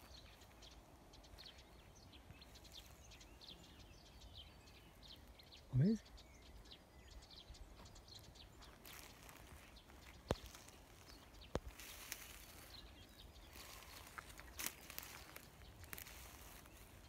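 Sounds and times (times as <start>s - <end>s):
soft rustling: 8.6s - 17.0s.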